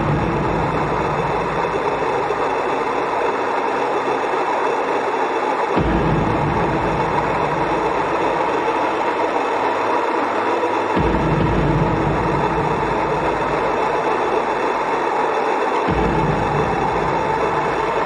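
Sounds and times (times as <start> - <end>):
deep bass note: 0.0 - 2.7, 5.8 - 8.8, 15.9 - 18.0
dark ambient synth drone: 0.0 - 18.0.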